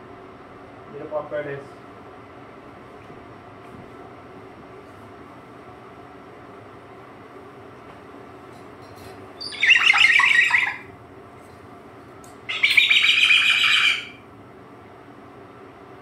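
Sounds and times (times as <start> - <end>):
cockatoo harsh calls: 9.4 - 10.9, 12.5 - 14.2.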